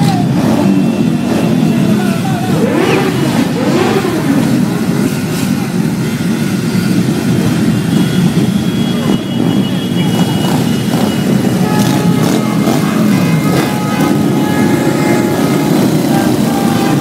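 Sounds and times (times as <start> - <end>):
motorcycles rumbling past: 0.0 - 5.8, 10.4 - 17.0
motorcycle engines revving: 0.0 - 17.0.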